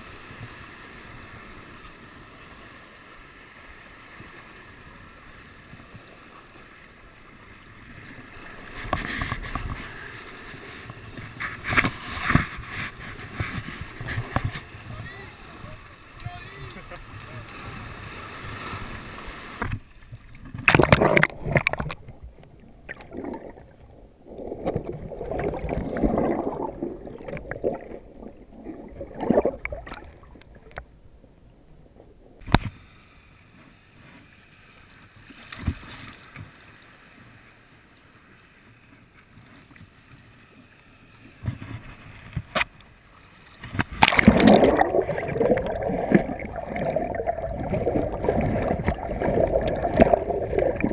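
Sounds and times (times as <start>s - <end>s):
water sloshing and splashing: 10.6s - 30.9s, 43.5s - 50.9s
water gurgling: 11.3s - 32.6s, 43.8s - 50.9s.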